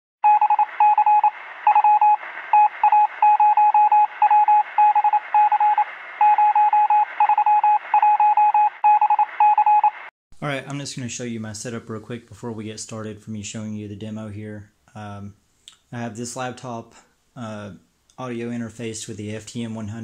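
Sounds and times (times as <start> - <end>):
morse code beeps: 0.2 - 10.0.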